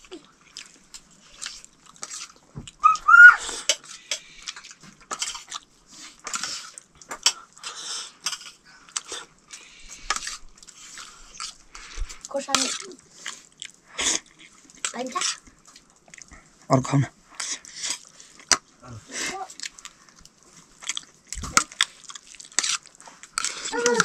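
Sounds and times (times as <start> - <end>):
chewing: 0.0 - 16.6, 17.3 - 24.0
high-pitched call: 2.8 - 3.5.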